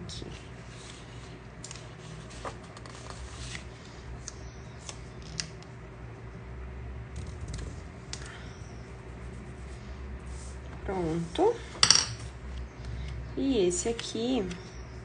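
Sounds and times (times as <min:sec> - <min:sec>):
paper rustling and scraping: 0:00.6 - 0:05.4.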